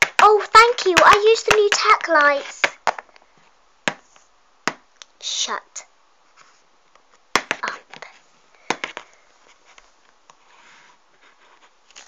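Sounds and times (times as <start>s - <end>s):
plastic toy taps and clicks: 0.0s - 3.1s.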